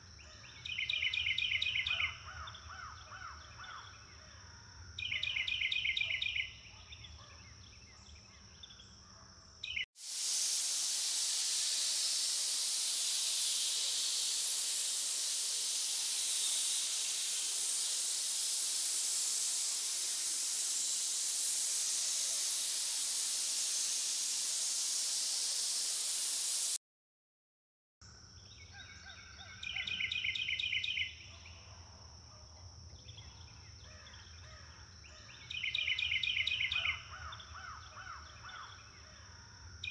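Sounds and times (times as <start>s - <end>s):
high insect tones: 9.6s - 26.8s
loud high-pitched hiss: 9.7s - 26.8s.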